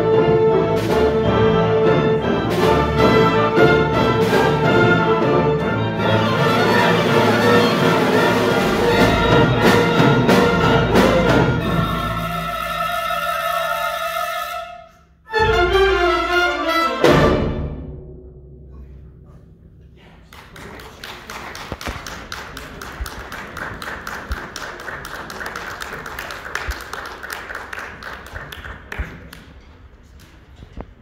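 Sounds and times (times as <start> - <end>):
audience applauding: 20.2 - 29.6.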